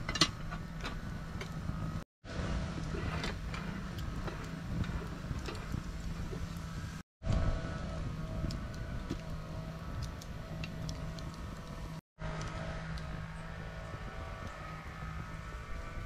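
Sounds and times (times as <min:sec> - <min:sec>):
wood fire crackling: 0:00.0 - 0:07.0, 0:07.8 - 0:12.0
steady low hum: 0:00.0 - 0:16.0.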